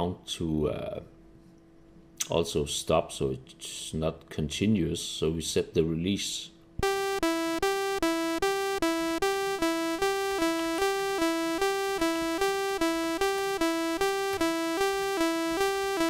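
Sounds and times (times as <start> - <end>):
two-note synth pattern: 6.8 - 16.0.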